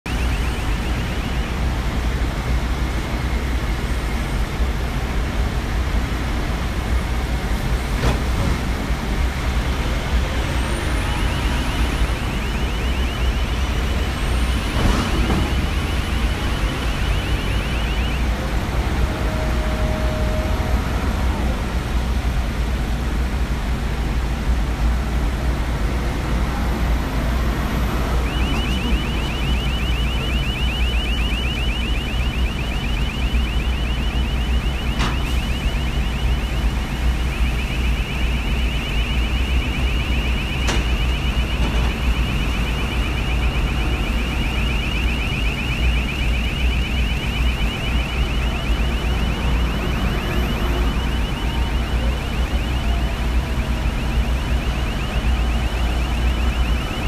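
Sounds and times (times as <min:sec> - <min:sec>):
rapid pulsing warning beeper: 0:00.0 - 0:04.3, 0:09.6 - 0:20.4, 0:27.6 - 0:57.0.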